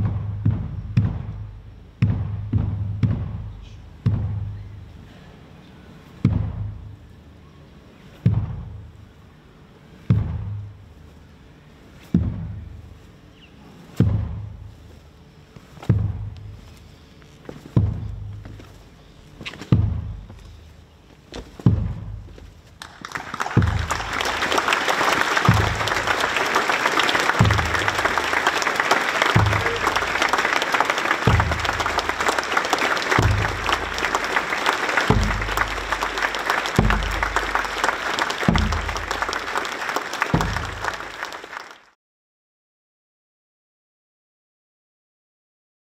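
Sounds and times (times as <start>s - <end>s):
deep drum beat: 0.0s - 4.8s, 10.1s - 10.9s, 14.0s - 14.7s, 15.9s - 16.6s, 19.8s - 20.4s, 21.6s - 22.4s, 23.4s - 24.6s, 25.4s - 26.5s, 27.1s - 28.6s, 29.3s - 39.6s, 40.3s - 41.0s
crowd applauding: 22.8s - 42.0s.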